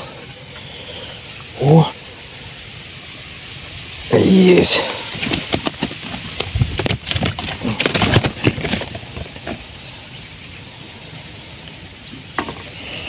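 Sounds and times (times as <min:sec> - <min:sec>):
fish thrashing in landing net: 0:04.9 - 0:09.6.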